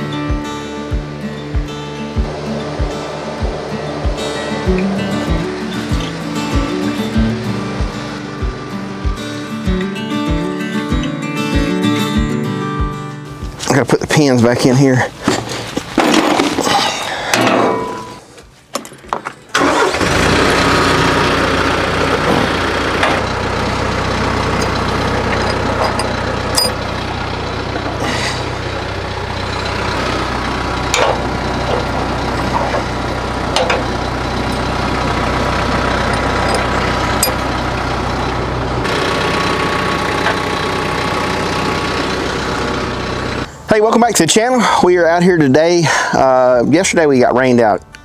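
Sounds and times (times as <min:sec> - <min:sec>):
diesel tractor engine idling: 0:00.0 - 0:11.7, 0:19.5 - 0:46.6
metal chains clanking: 0:24.3 - 0:26.9, 0:36.0 - 0:37.5.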